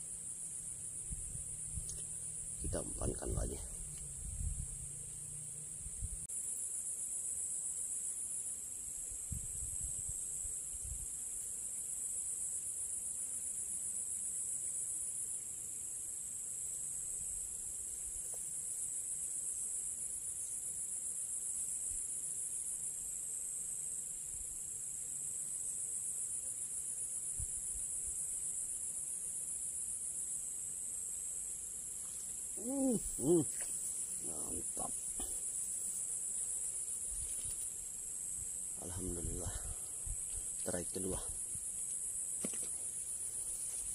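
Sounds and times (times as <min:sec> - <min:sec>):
shrill insect chorus: 0:00.0 - 0:43.9.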